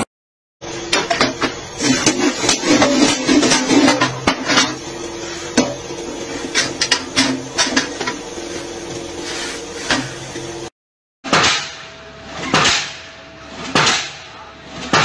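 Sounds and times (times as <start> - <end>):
motor hum: 0.6 - 10.7.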